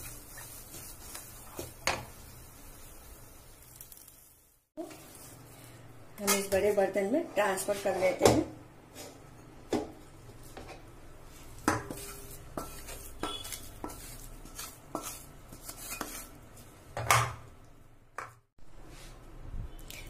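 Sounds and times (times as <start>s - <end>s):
wooden spatula scraping metal pan: 11.4s - 16.7s.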